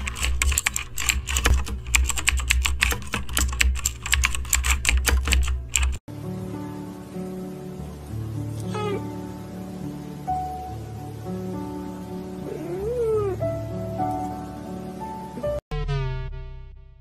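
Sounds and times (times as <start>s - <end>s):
keyboard typing: 0.0s - 6.0s
soft music with held notes: 5.2s - 15.6s
low pulsing bass: 15.7s - 17.0s.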